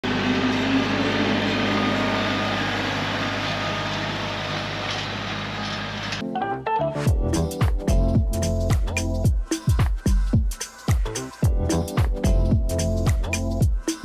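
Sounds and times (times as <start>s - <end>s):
vehicle engine running: 0.0s - 6.2s
music: 6.2s - 14.0s.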